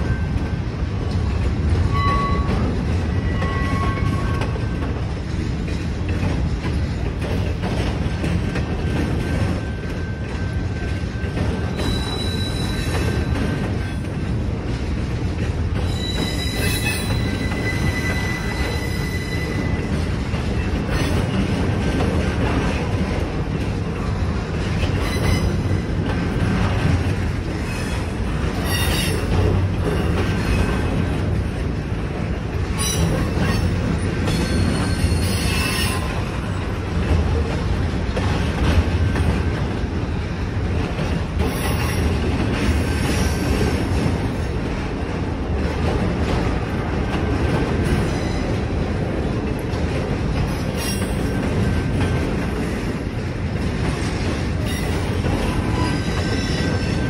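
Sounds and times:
train wheels rumbling on rail: 0.0s - 57.0s
high wheel squeals: 11.6s - 13.3s, 15.8s - 19.9s, 34.3s - 36.2s.

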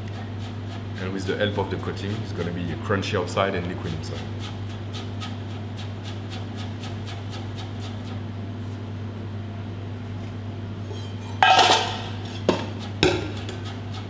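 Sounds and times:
steady low hum: 0.0s - 14.0s
metal pans clanking: 10.9s - 13.6s.

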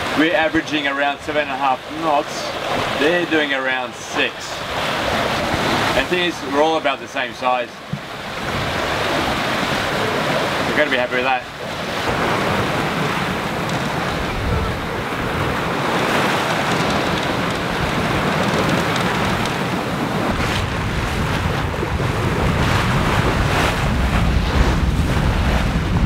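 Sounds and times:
water rushing and splashing: 0.0s - 26.0s
waves washing: 0.0s - 26.0s
wind buffeting microphone: 7.9s - 26.0s.

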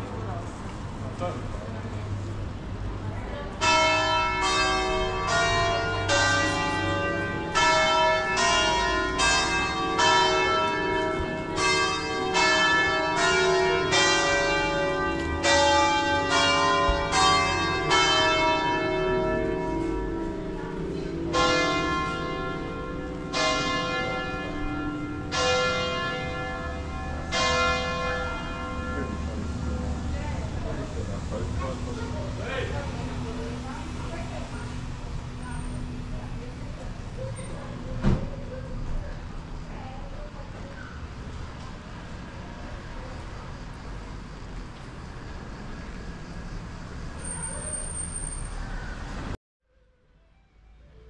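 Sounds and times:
church bells ringing: 3.5s - 31.0s.

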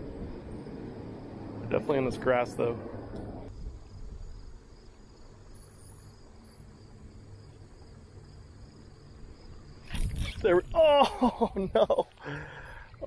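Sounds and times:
faint insect trilling: 0.2s - 12.0s.

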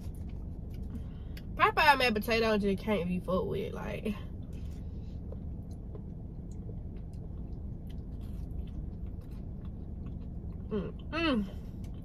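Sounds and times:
steady low hum: 0.0s - 12.0s
chewing clicks and smacks: 4.4s - 11.1s, 11.8s - 12.0s.

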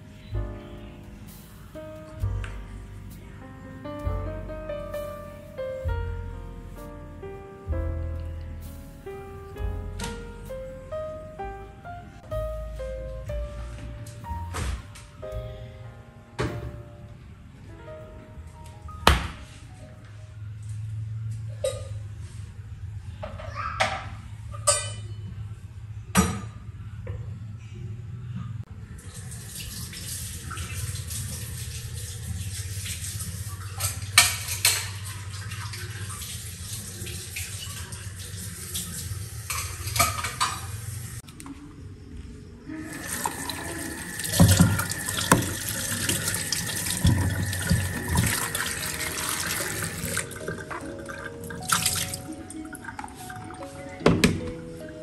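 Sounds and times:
tap water splashing into sink: 43.1s - 52.2s.

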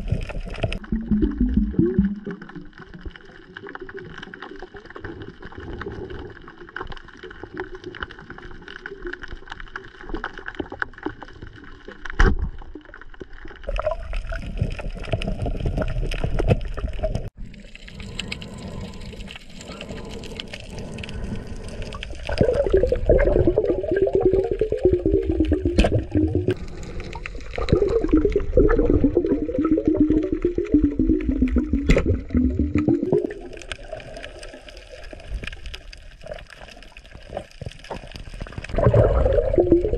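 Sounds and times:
gurgling bubbles: 0.0s - 39.9s
muffled underwater hiss: 17.5s - 25.2s.

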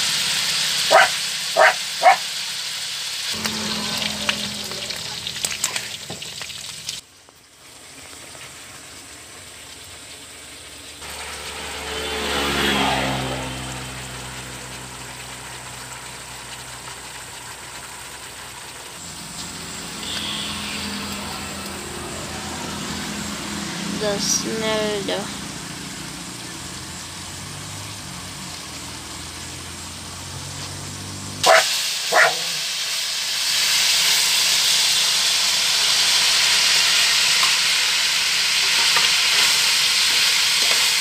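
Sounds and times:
meat sizzling in a pan: 0.0s - 11.6s, 13.8s - 24.4s, 25.4s - 41.0s
dog barking: 0.9s - 2.3s, 31.4s - 32.6s
passing motor: 3.3s - 6.1s, 11.0s - 17.4s, 18.9s - 32.6s.

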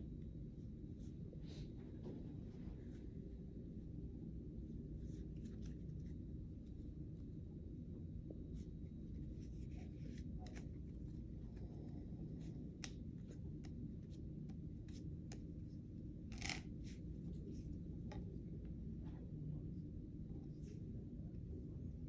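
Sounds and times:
low background hum: 0.0s - 22.0s
playing cards flicking and snapping: 9.3s - 15.5s, 16.3s - 17.0s.

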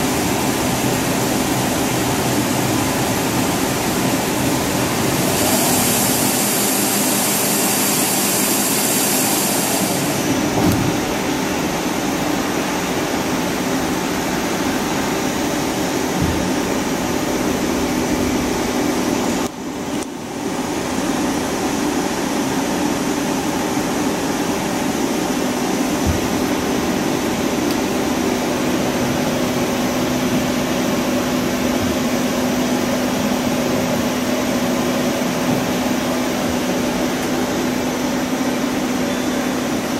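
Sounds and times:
lathe spindle hum and whir: 0.0s - 39.9s
high hiss: 5.1s - 10.4s.

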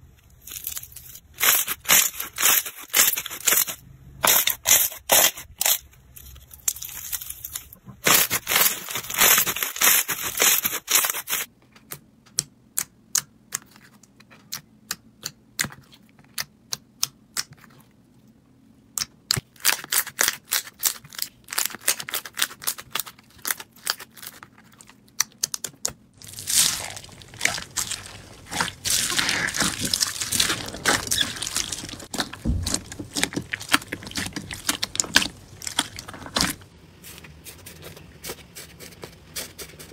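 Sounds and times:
crunchy bead slime crackling: 0.3s - 11.5s, 26.2s - 36.7s.

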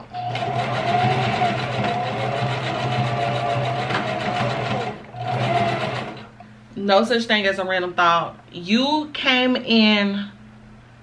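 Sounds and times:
electric sewing machine running: 0.2s - 6.3s.

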